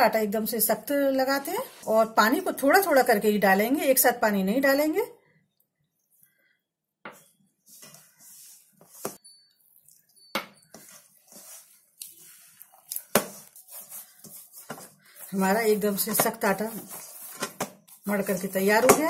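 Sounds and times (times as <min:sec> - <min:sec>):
hands kneading dough: 0:10.7 - 0:19.0.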